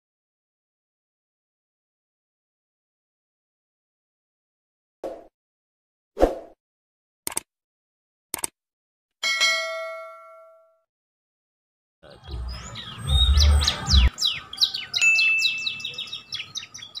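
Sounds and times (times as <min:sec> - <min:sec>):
bell ding: 0:09.2 - 0:10.8, 0:15.0 - 0:15.9
birds chirping: 0:12.0 - 0:17.0.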